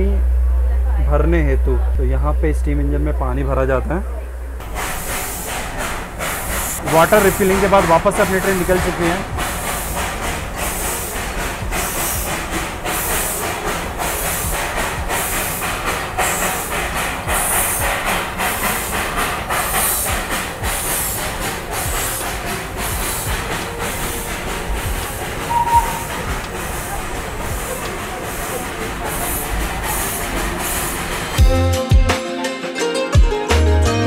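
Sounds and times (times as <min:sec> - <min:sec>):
steam locomotive chuffing: 0:03.1 - 0:31.5
rail clatter: 0:04.6 - 0:31.4
train whistle toot: 0:25.5 - 0:26.4.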